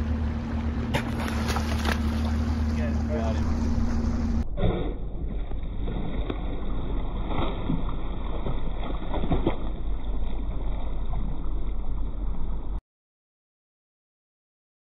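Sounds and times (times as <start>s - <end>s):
water lapping: 0.0s - 4.4s, 5.1s - 12.8s
low rumble: 0.0s - 12.8s
dolphin splashing: 0.6s - 12.6s.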